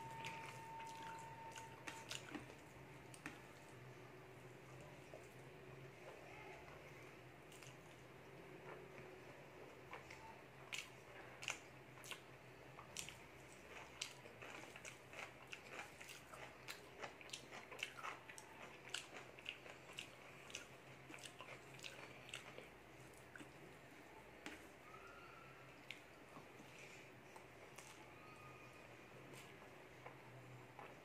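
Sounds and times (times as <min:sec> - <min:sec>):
chewing with wet mouth clicks: 0:00.2 - 0:03.8, 0:07.5 - 0:09.1, 0:09.9 - 0:23.7, 0:25.8 - 0:26.4.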